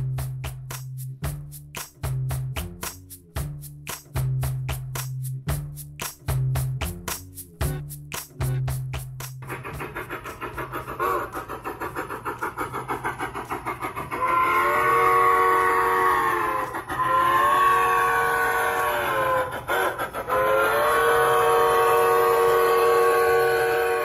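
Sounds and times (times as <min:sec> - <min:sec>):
model steam locomotive chuffing: 0:09.4 - 0:24.0
steam whistle blasts: 0:14.1 - 0:24.0.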